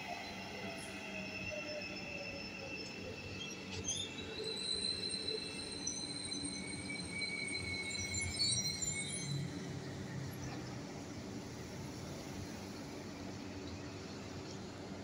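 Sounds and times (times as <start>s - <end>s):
train brakes squealing: 0.0s - 14.9s
train low rumble: 9.4s - 15.0s.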